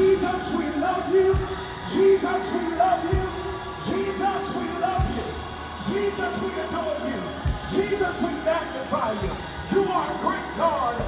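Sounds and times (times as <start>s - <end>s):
marching band brass playing gospel: 0.0s - 11.0s
deep drum beat: 1.2s - 2.1s, 3.0s - 4.0s.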